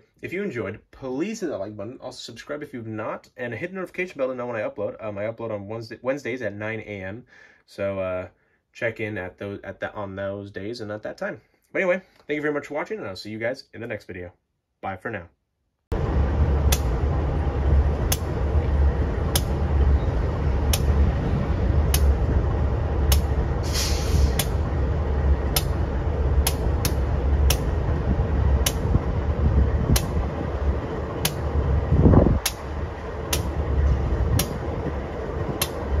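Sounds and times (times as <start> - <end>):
freight train rumbling past: 15.9 - 36.0
wheels clicking over rail joints: 16.0 - 36.0
brief hiss: 23.6 - 24.6.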